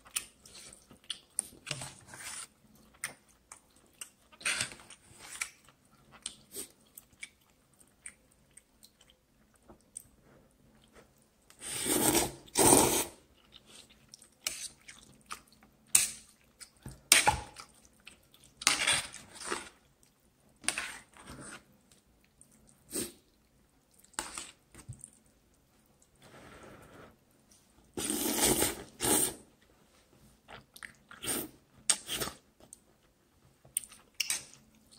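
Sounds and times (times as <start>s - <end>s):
person slurping noodles: 11.6s - 13.2s, 28.0s - 29.5s
person chewing: 30.5s - 32.8s, 33.7s - 34.9s.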